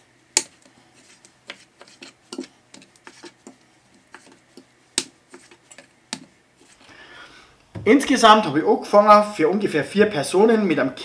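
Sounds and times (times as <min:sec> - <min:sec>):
knife cutting fish on a board: 0:00.4 - 0:06.3.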